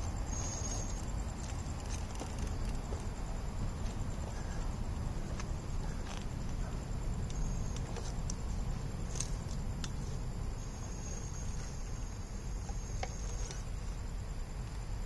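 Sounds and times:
small ticks: 0.0s - 3.2s, 10.9s - 14.0s.

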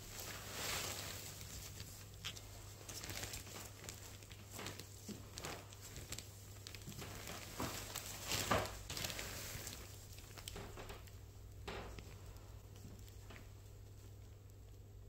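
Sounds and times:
gloved hands rustling gauze: 0.0s - 11.1s.

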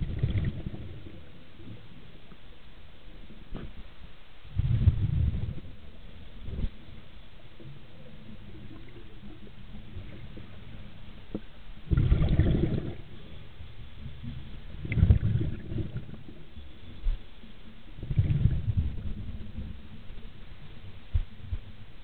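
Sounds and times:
low steady rumble: 0.0s - 22.0s
underwater breath bubbling: 11.8s - 16.5s, 18.0s - 19.5s.

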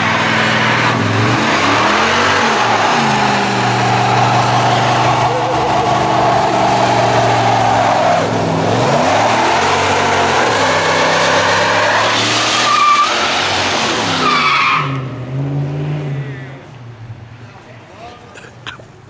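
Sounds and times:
spinning tyres hissing: 0.0s - 15.0s
truck engine revving: 0.0s - 16.7s
tyre squeals: 11.3s - 13.5s.

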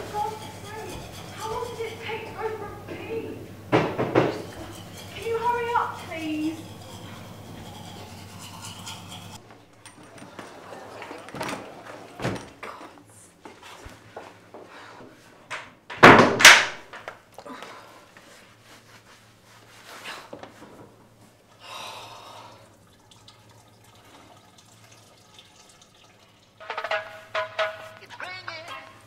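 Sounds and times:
knocks and thuds: 3.7s - 4.4s.

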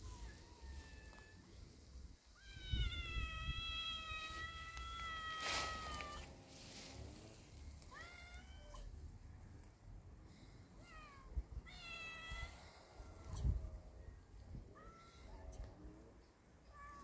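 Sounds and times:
cat meowing: 2.4s - 6.3s, 7.9s - 8.9s.

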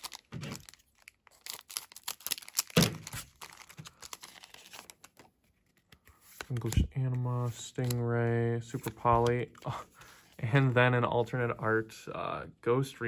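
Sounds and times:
foil wrapper crinkling and tearing: 0.0s - 5.3s.

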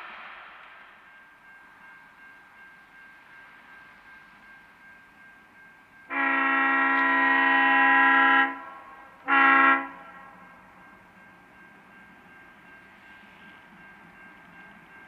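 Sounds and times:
locomotive air horn: 6.1s - 10.4s.

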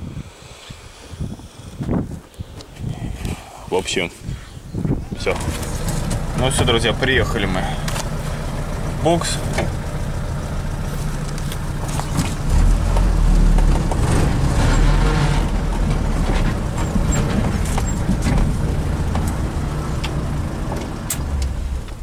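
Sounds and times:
tractor diesel engine running: 4.9s - 22.0s.

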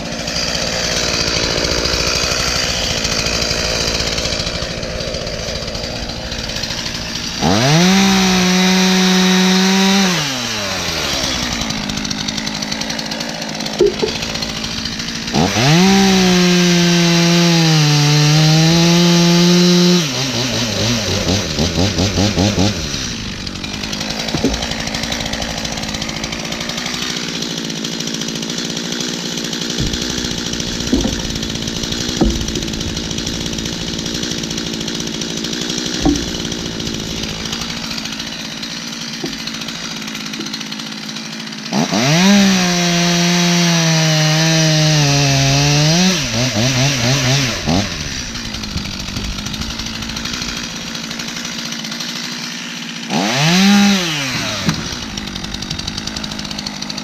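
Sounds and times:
chainsaw idling and revving: 0.0s - 57.0s
sharp knocks: 11.1s - 17.4s, 20.8s - 27.5s, 29.3s - 40.9s, 44.8s - 51.7s, 54.5s - 56.7s.

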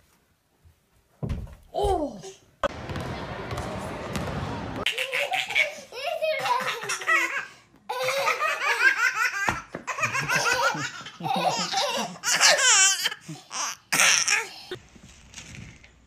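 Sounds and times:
baby laughing: 4.8s - 14.5s.

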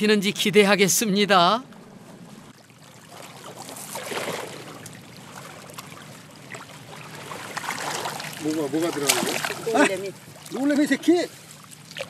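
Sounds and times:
seawater sloshing and trickling: 2.4s - 12.0s
water splashing: 2.5s - 12.0s.

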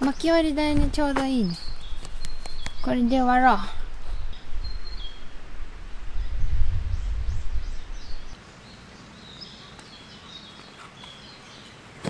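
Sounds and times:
small birds chirping: 0.0s - 5.4s, 6.1s - 12.0s
low rumble: 3.8s - 8.4s.

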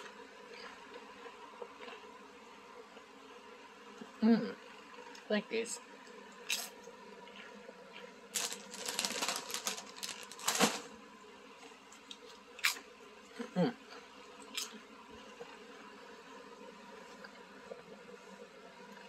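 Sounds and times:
potato chip crunching: 8.4s - 10.9s.

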